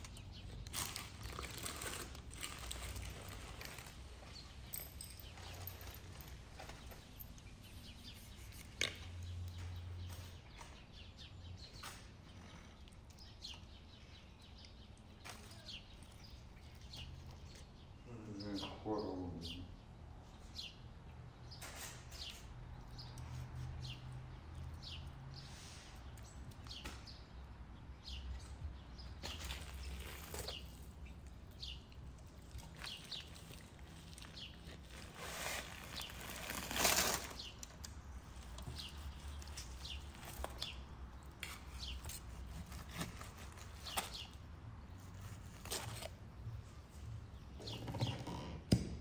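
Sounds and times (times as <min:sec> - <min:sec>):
rustling: 0:00.0 - 0:09.0, 0:29.2 - 0:44.4
small birds chirping: 0:00.0 - 0:48.4.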